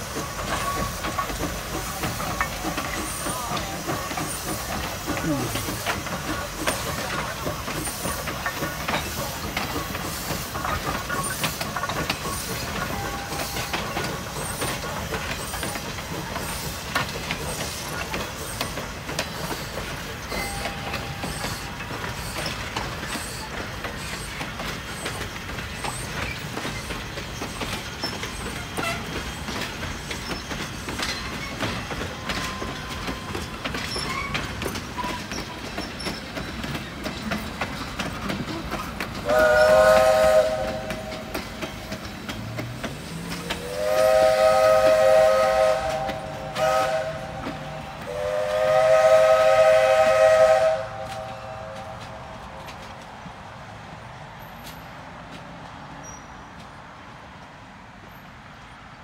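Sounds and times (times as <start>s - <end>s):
steam locomotive passing: 0.0s - 59.0s
wheels clicking over rail joints: 0.0s - 59.0s
faint wheel squeals: 32.3s - 37.3s, 56.0s - 56.6s.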